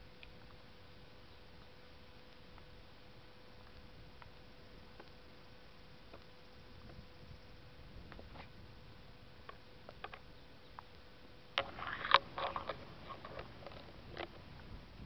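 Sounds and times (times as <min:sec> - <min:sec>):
turtles clicking and knocking: 0:11.6 - 0:14.5.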